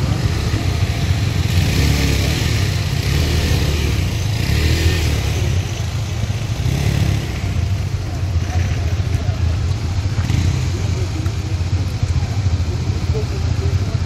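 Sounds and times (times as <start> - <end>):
motorcycle engines revving: 0.0 - 14.0.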